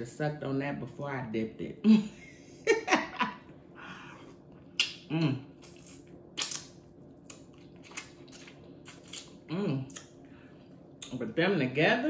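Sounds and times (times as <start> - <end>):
woman laughing: 1.8 - 3.5
mouth smacks: 4.8 - 10.1
woman humming: 5.1 - 5.5, 9.5 - 10.0.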